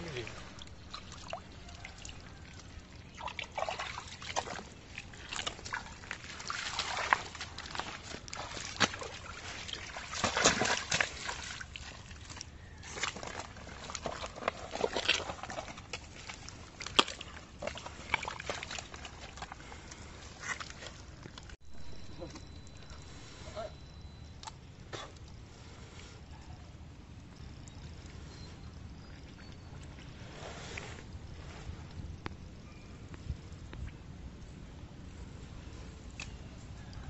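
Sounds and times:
hands sloshing in muddy water: 0:00.0 - 0:23.6.

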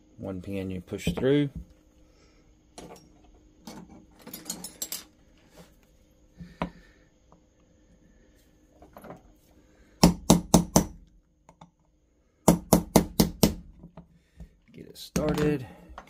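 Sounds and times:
hammer tapping steel punch: 0:10.0 - 0:11.7, 0:12.5 - 0:13.6.

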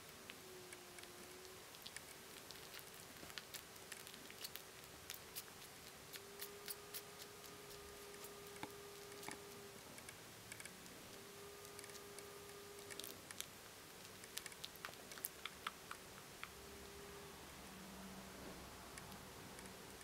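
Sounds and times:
thin steady hum: 0:00.0 - 0:20.0
kittens suckling: 0:00.4 - 0:09.7, 0:11.2 - 0:16.8.

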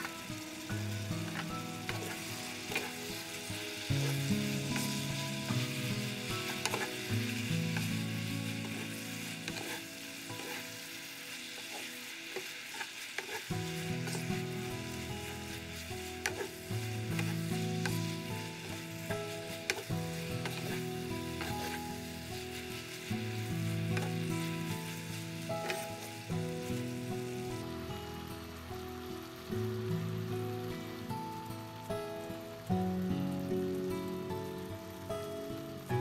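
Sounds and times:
noodles sizzling in frying pan: 0:00.0 - 0:36.0
spatula scraping a pan: 0:01.3 - 0:26.2.

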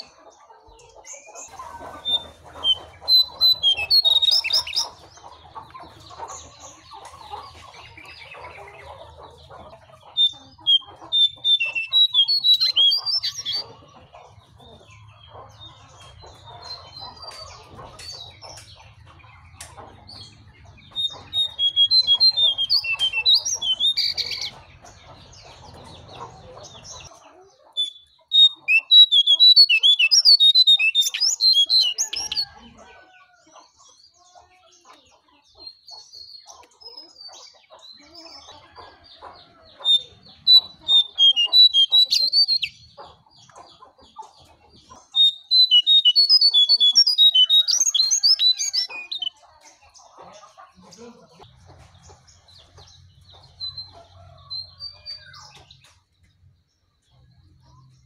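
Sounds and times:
songbird twittering: 0:00.8 - 0:13.8, 0:14.6 - 0:27.1, 0:27.7 - 0:32.9, 0:35.7 - 0:49.4.

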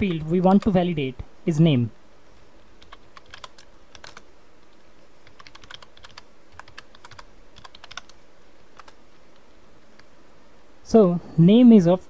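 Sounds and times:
typing on keyboard: 0:02.8 - 0:04.2, 0:05.2 - 0:08.2, 0:08.8 - 0:09.0.

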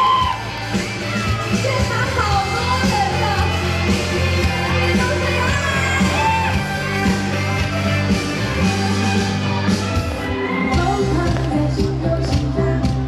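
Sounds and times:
drum and bass beat: 0:00.0 - 0:13.0
live pop band: 0:00.0 - 0:13.0
woman singing: 0:10.6 - 0:13.0.

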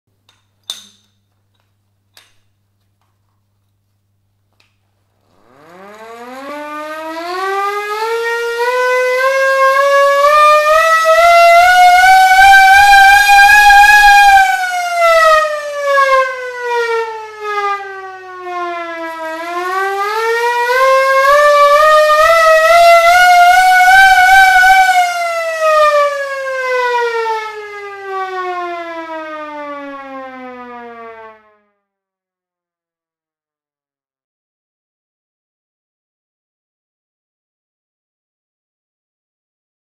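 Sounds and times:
hand-cranked siren wailing: 0:05.3 - 0:31.6.

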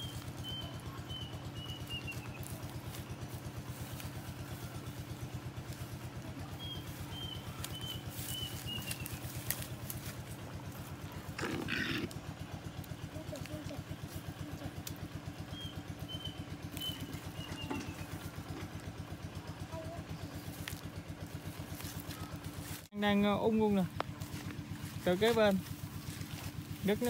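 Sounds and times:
small engine running: 0:00.0 - 0:27.0
bird chirping: 0:15.5 - 0:18.2.

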